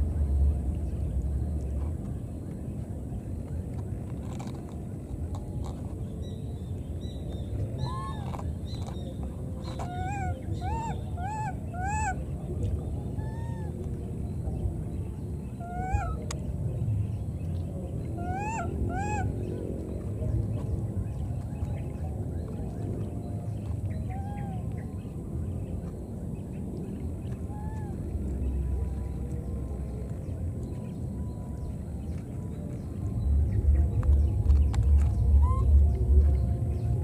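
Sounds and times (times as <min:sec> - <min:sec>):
low background noise: 0:00.0 - 0:37.0
baby monkeys coo calls: 0:07.8 - 0:08.4, 0:09.8 - 0:12.2, 0:15.6 - 0:16.2, 0:18.2 - 0:19.3, 0:35.4 - 0:35.8.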